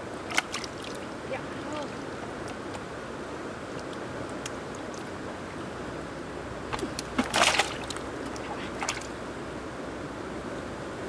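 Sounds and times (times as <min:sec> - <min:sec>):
water rushing: 0:00.0 - 0:11.0
water sloshing splash: 0:00.2 - 0:02.6, 0:06.7 - 0:09.2.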